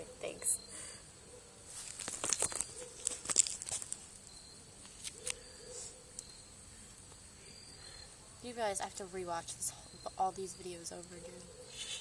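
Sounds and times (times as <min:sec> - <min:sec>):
paper fire crackling: 0:01.7 - 0:04.2
burning paper crinkling: 0:01.7 - 0:04.3.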